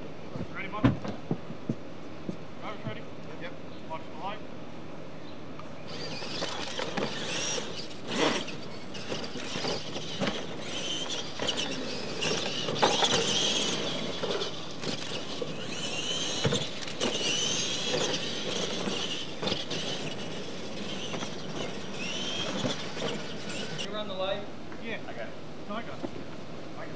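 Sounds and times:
electric motors whining: 0:05.6 - 0:24.1
tyres scrabbling on dirt: 0:05.8 - 0:23.9
trucks thumping on landing: 0:05.9 - 0:23.9.

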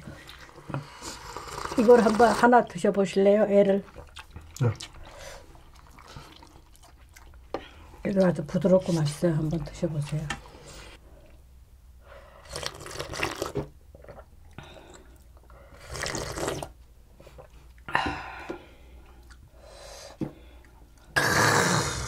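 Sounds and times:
slurping and sipping: 0:00.1 - 0:02.5, 0:12.4 - 0:17.6.

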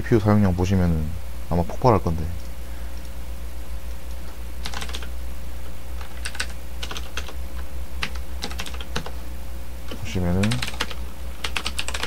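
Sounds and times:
keyboard typing: 0:04.6 - 0:05.1, 0:06.0 - 0:07.4, 0:08.0 - 0:09.2, 0:09.9 - 0:12.0.

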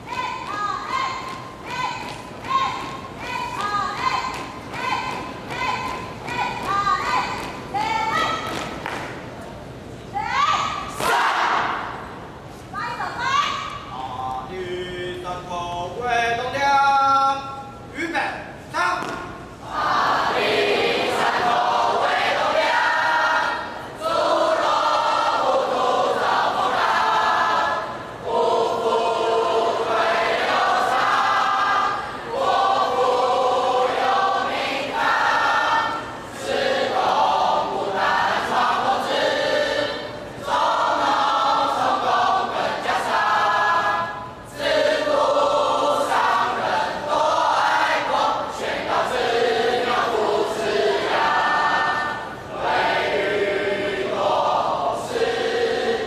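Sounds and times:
group singing a marching song: 0:11.0 - 0:12.1, 0:19.6 - 0:56.0.

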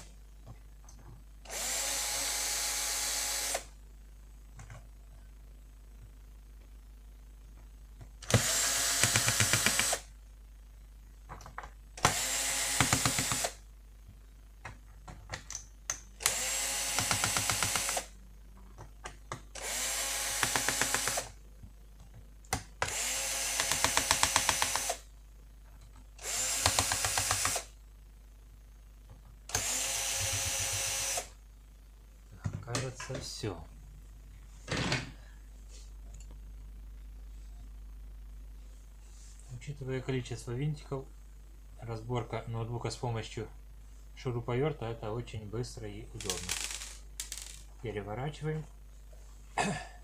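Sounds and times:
cordless drill running: 0:01.5 - 0:03.7, 0:08.2 - 0:10.1, 0:12.0 - 0:13.6, 0:16.2 - 0:18.1, 0:19.5 - 0:21.4, 0:22.8 - 0:25.0, 0:26.2 - 0:27.7, 0:29.5 - 0:31.4.

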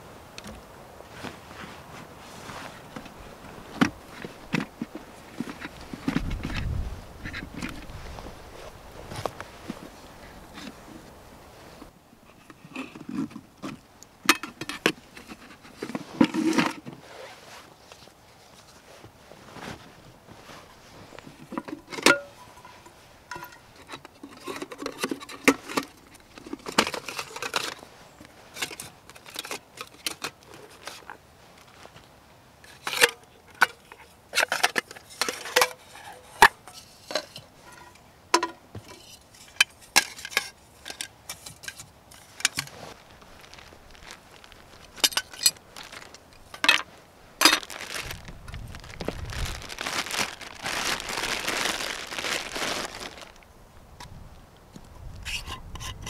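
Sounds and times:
metal pots knocking and clinking: 0:21.5 - 0:23.6.

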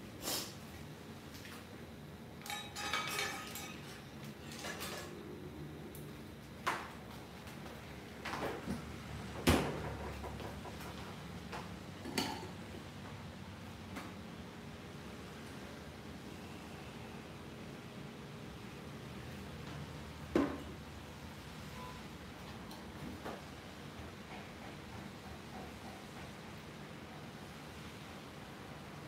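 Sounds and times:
dishes and utensils clinking: 0:02.4 - 0:05.2, 0:12.0 - 0:12.6.

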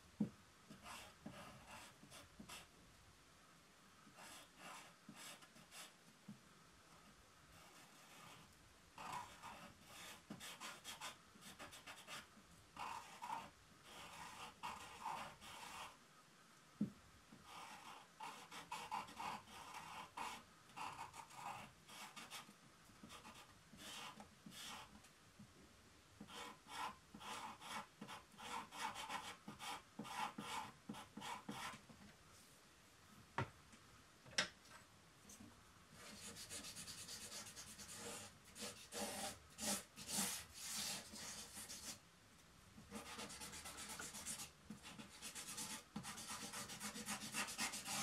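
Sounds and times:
drawing tool scratching paper: 0:07.6 - 0:16.0, 0:17.4 - 0:25.0, 0:26.2 - 0:31.8, 0:36.0 - 0:42.0, 0:42.9 - 0:48.0.

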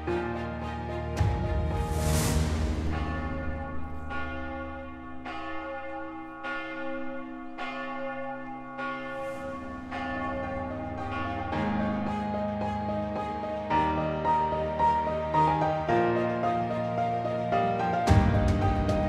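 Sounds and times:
church bell tolling: 0:02.6 - 0:14.2.

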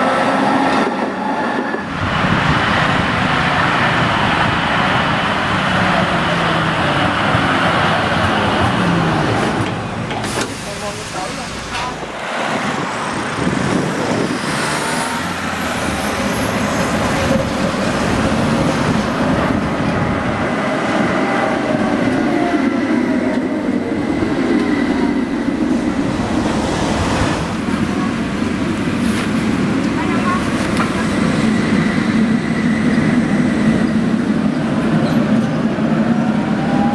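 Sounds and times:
tram wheel and rail rumble: 0:00.0 - 0:36.9
tram motor whine: 0:29.6 - 0:36.9.

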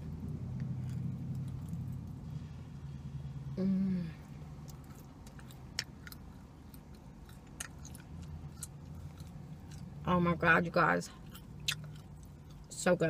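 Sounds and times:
cookie being chewed: 0:00.6 - 0:02.2, 0:04.6 - 0:09.9, 0:11.1 - 0:12.7.

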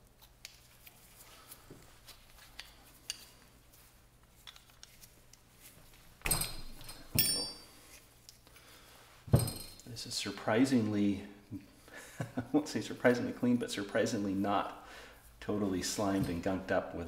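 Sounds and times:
sharp metallic clinks ringing: 0:06.3 - 0:07.8.

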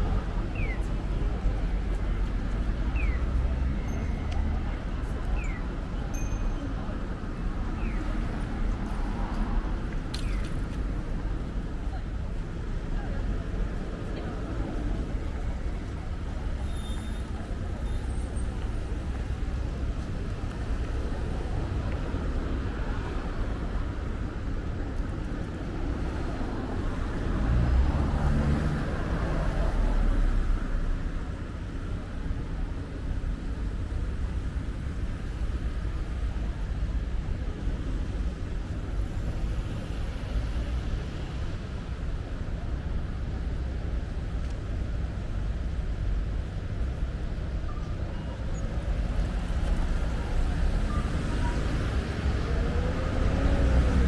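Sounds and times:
city road traffic: 0:00.0 - 0:54.0
vehicle passing close by: 0:50.5 - 0:54.0.

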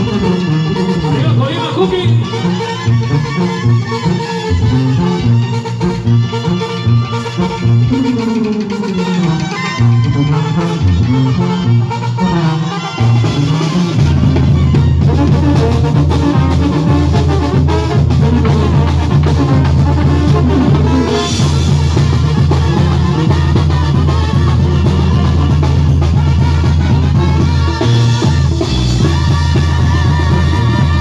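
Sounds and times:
brass horns: 0:00.0 - 0:31.0
heavy bass line: 0:00.0 - 0:31.0
live band playing loud music: 0:00.0 - 0:31.0
drum kit: 0:02.4 - 0:31.0.

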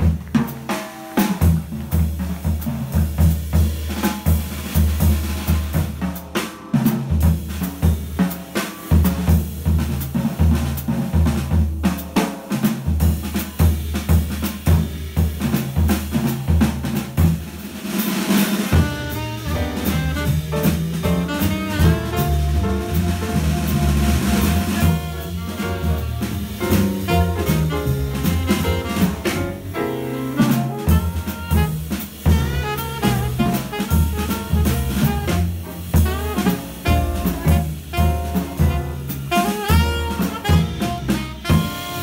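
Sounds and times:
double bass: 0:00.0 - 0:17.8, 0:18.5 - 0:42.0
jazz drum kit solo: 0:00.0 - 0:42.0
saxophone playing: 0:18.7 - 0:42.0.

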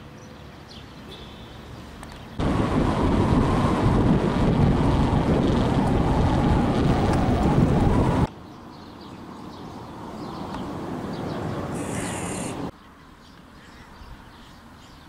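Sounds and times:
quiet outdoor background: 0:00.0 - 0:02.6, 0:08.3 - 0:15.0
wind buffeting microphone: 0:02.4 - 0:08.3.

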